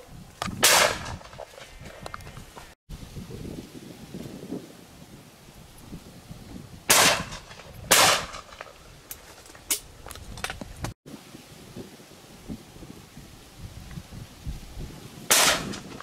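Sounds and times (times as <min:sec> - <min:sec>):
wind on microphone: 0:00.0 - 0:09.1, 0:09.8 - 0:16.0
shotgun shots: 0:00.6 - 0:01.3, 0:06.9 - 0:08.6, 0:15.3 - 0:15.9.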